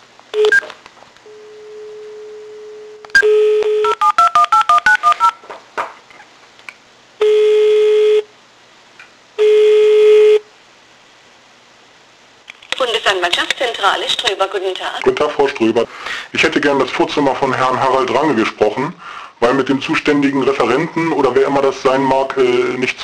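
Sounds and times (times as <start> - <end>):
telephone ringing tones: 1.3 - 5.4
telephone dial tone: 3.1 - 5.4.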